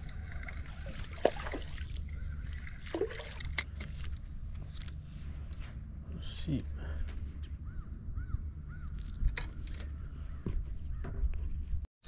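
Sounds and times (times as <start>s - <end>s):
fish splashing at water surface: 0.0s - 3.4s
steady low rumble: 0.0s - 11.8s.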